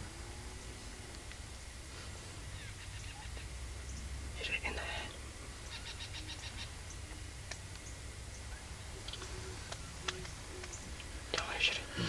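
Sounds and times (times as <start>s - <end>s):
small animal calls: 2.5s - 4.1s, 5.5s - 7.2s
sharp clicks: 9.0s - 11.6s.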